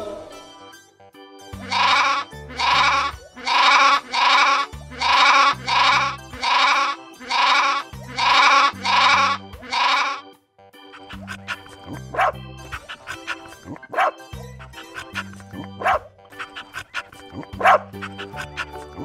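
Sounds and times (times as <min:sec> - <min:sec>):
background music with low bass: 0:00.0 - 0:19.0
lambs bleating: 0:01.6 - 0:10.3.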